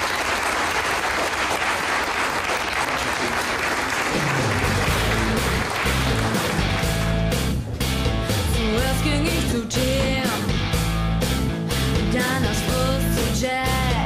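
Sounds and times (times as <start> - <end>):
audience applauding: 0.0 - 7.7
rock band playing: 4.1 - 14.0
bass notes: 4.2 - 14.0.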